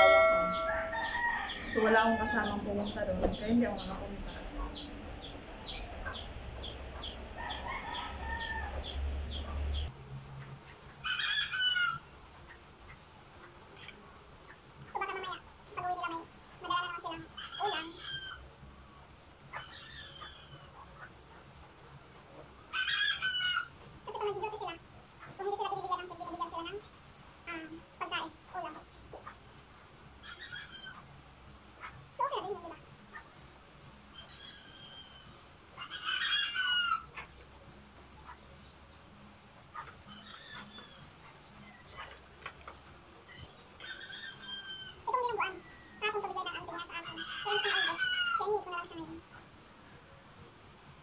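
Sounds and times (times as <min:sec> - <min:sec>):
rapid high chirps: 0:00.0 - 0:01.2
rooster crowing: 0:00.0 - 0:02.6, 0:07.4 - 0:09.0, 0:22.7 - 0:23.7, 0:35.8 - 0:37.2
chickens calling: 0:00.0 - 0:51.0.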